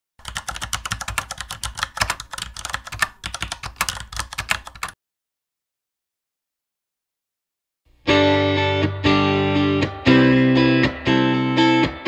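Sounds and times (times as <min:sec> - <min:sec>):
computer keyboard typing: 0:00.2 - 0:05.0.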